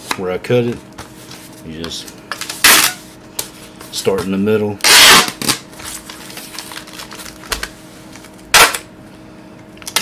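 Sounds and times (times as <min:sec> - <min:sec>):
tape ripping: 0:04.8 - 0:07.5.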